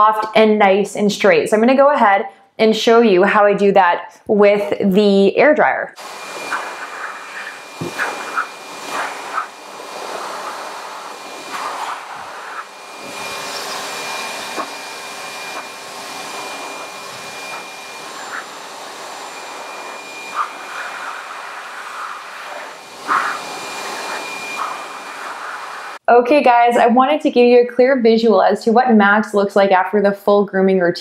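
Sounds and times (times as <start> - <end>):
dog dryer blowing air: 6.0 - 26.0
high motor whine: 6.0 - 26.0.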